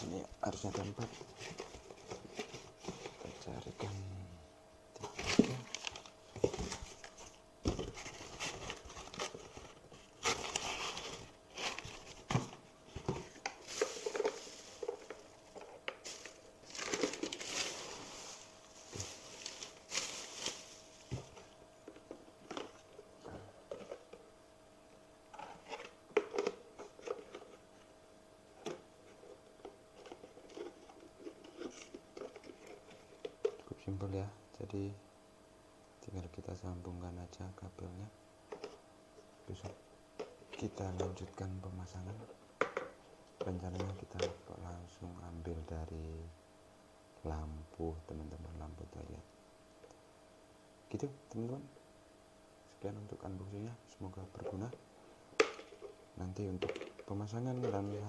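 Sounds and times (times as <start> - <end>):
cardboard rustling: 0.5 - 3.9, 5.0 - 22.9
plastic packaging crinkling: 13.6 - 21.2.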